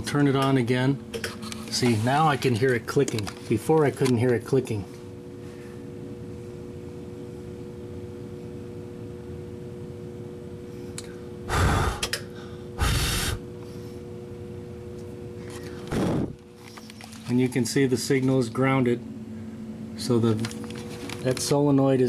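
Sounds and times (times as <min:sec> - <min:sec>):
smoke machine humming: 0:00.0 - 0:22.0
loud breaths close to microphone: 0:11.5 - 0:14.0.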